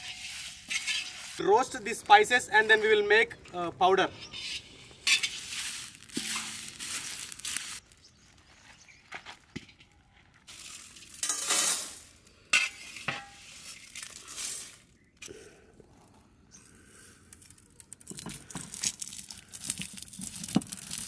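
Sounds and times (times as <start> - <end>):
spices rattling in a pan: 5.1 - 7.8, 17.8 - 21.0.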